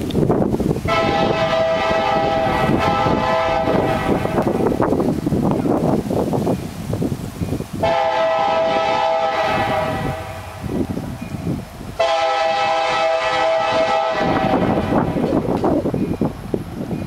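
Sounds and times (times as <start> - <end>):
locomotive air horn blasts: 0.9 - 4.8, 7.8 - 10.7, 12.0 - 15.2.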